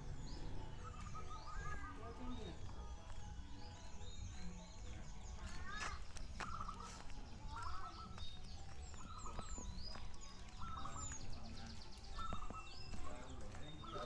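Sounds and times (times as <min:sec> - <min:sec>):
doves cooing: 0:00.0 - 0:02.7, 0:06.4 - 0:08.3, 0:08.9 - 0:14.0.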